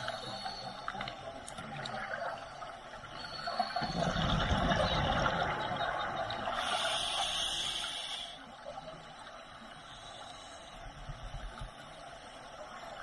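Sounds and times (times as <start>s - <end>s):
exhaled bubbles gurgling: 1.5s - 7.6s
inhaled breath hissing through regulator: 6.5s - 8.6s, 9.8s - 11.0s.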